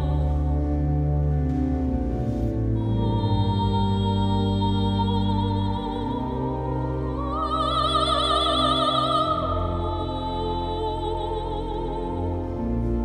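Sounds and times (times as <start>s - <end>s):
pipe organ chords: 0.0s - 13.0s
soprano singing with vibrato: 2.8s - 12.5s.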